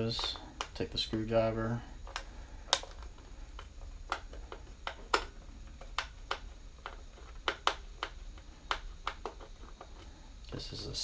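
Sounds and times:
plastic controller clicks and taps: 2.1s - 9.5s.

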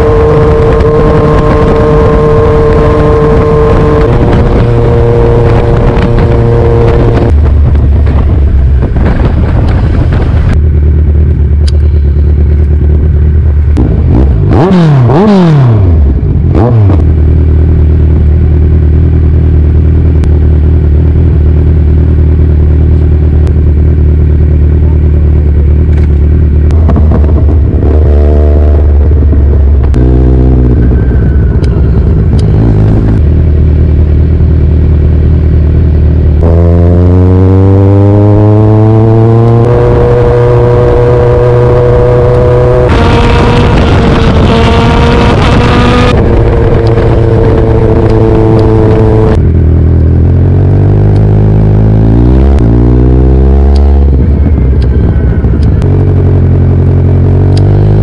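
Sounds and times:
motorcycle throttle blips: 0.0s - 58.0s
motorcycle engines idling: 10.5s - 13.8s, 17.2s - 26.7s.

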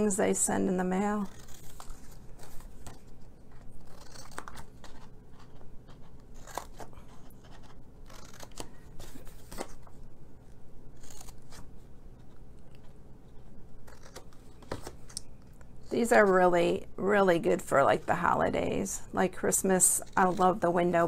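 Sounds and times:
scissors snipping cardstock: 1.1s - 9.7s, 19.6s - 21.0s.

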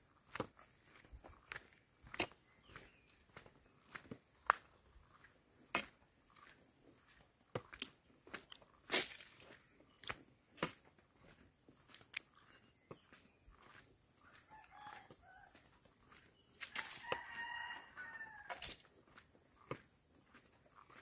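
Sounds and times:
footsteps on trail: 0.0s - 21.0s
rooster crowing: 14.2s - 15.7s, 16.6s - 18.8s.

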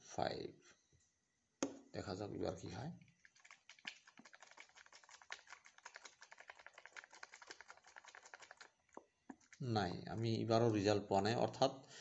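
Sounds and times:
plastic cup ticking and clicking: 3.2s - 9.7s.

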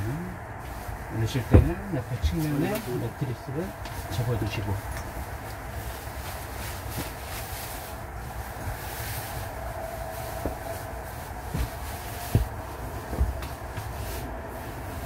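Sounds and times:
fabric rustling: 0.0s - 15.0s
steady low rumble: 0.0s - 15.0s
dull knocks: 1.4s - 1.8s, 11.5s - 14.0s.

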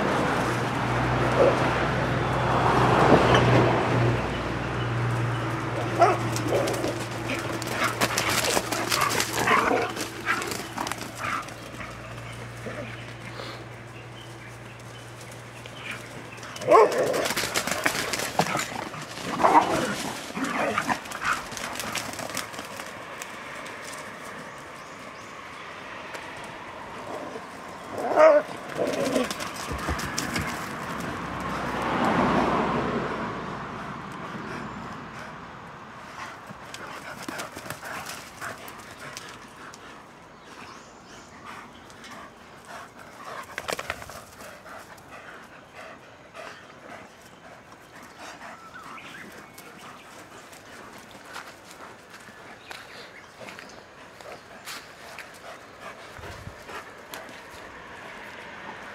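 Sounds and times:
dogs scuffling: 5.1s - 13.2s, 14.2s - 25.0s, 28.4s - 31.5s
dogs barking high-pitched: 5.8s - 6.8s, 16.6s - 17.3s.

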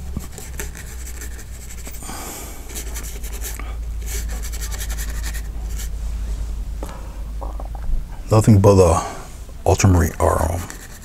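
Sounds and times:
brush scrubbing paint onto canvas: 0.0s - 2.0s, 2.6s - 5.9s, 10.2s - 11.0s
steady low hum: 0.0s - 11.0s.

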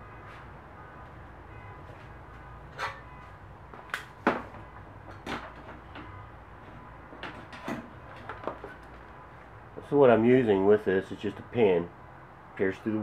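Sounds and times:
sharp handling clicks and knocks: 3.8s - 9.2s.

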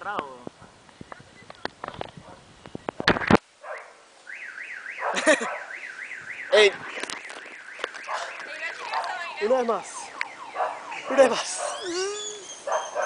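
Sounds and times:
warbling electronic siren alarm: 4.3s - 13.0s.

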